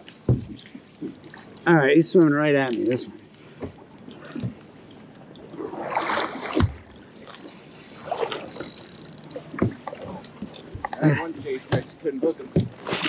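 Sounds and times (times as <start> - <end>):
water splashing against boat: 0.0 - 13.0.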